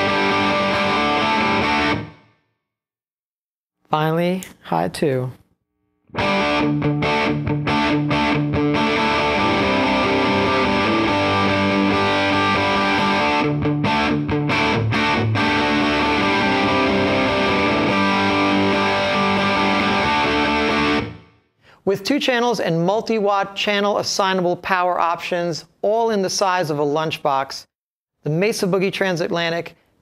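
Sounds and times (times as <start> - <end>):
distorted electric guitar chords: 0.0 - 2.3, 6.1 - 21.3.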